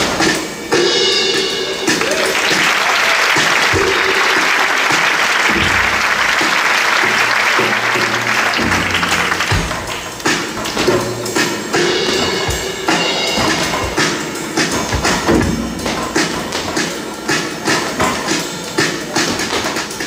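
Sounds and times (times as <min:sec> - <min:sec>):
live drum kit playing: 0:00.0 - 0:20.0
audience applauding: 0:01.9 - 0:10.9.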